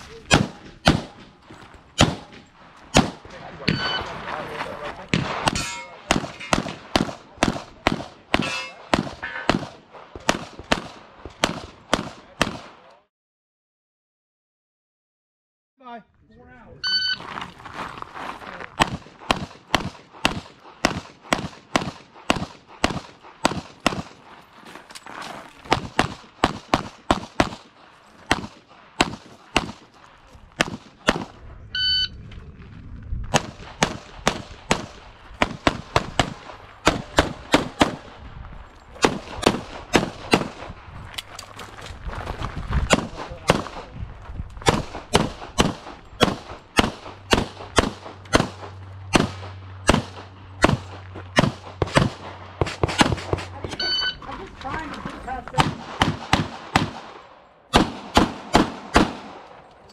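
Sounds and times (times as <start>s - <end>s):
pistol shots: 0.0s - 4.2s, 5.0s - 12.9s, 18.8s - 24.2s, 25.6s - 31.4s, 33.3s - 38.3s, 38.9s - 40.8s, 42.9s - 43.9s, 44.6s - 53.7s, 55.5s - 59.8s
shot timer beep: 3.7s - 4.1s, 16.8s - 17.2s, 31.8s - 32.1s, 53.8s - 54.2s.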